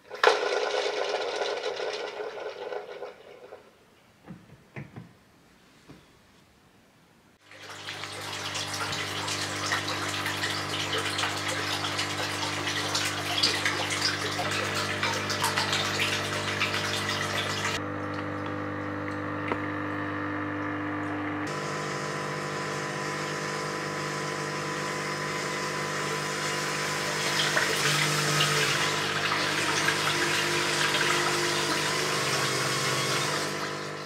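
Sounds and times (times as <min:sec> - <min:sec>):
electric water pump humming: 0:00.0 - 0:03.9, 0:07.4 - 0:34.0
water splashing from a hose: 0:07.4 - 0:18.4, 0:25.1 - 0:34.0.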